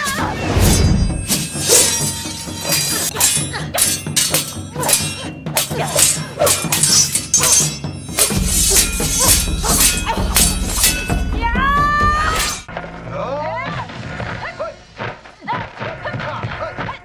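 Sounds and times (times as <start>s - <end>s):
sword strikes and clashes: 0.0s - 11.4s, 12.2s - 12.7s
film score music: 0.0s - 17.0s.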